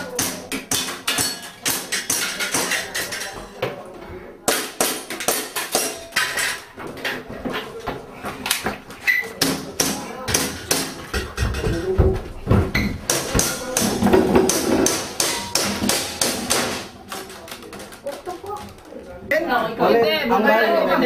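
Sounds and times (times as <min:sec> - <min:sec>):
pellets pinging off metal plates: 0:00.0 - 0:03.5, 0:13.1 - 0:19.0.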